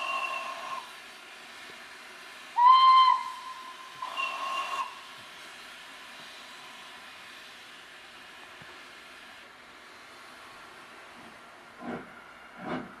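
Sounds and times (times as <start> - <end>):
steam locomotive whistle blasts: 0.0 - 0.9, 2.6 - 5.1.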